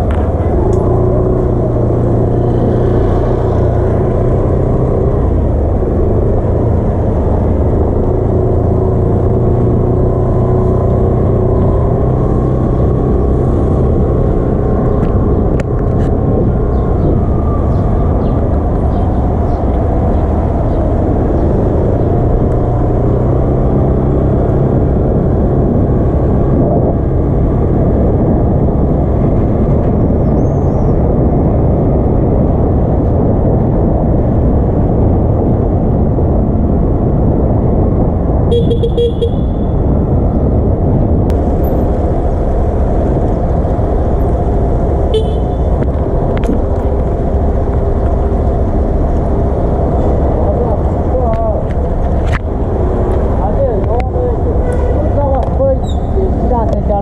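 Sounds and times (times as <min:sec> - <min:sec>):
wind and road rush: 0:00.0 - 0:57.0
scooter engine running: 0:43.7 - 0:50.3.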